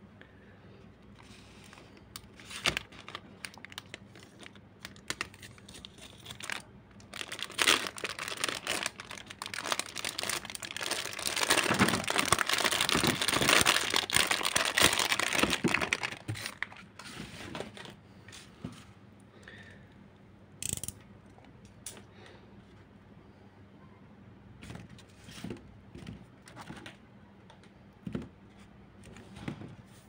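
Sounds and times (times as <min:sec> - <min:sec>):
plastic wrapping crinkling: 0:01.8 - 0:17.0.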